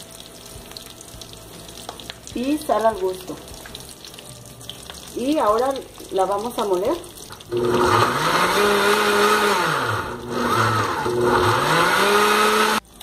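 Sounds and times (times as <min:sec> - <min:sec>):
electric blender running: 0:07.5 - 0:12.8.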